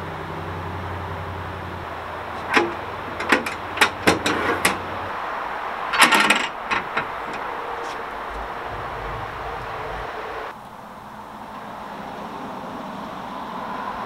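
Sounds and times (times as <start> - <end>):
metal doors clanking: 2.0 - 10.5
low steady hum: 6.6 - 10.6.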